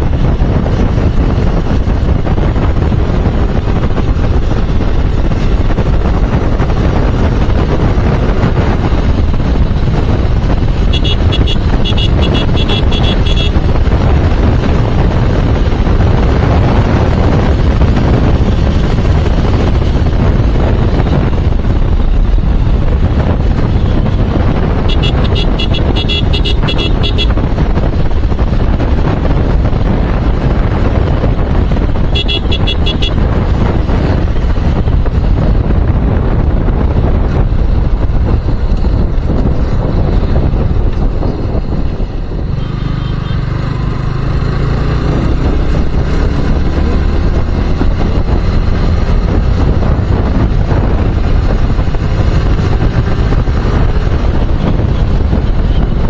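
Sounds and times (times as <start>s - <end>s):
wind buffeting microphone: 0.0s - 42.8s, 43.4s - 56.0s
motorcycle running: 0.0s - 56.0s
horn short beeps: 10.9s - 13.6s, 32.2s - 33.2s.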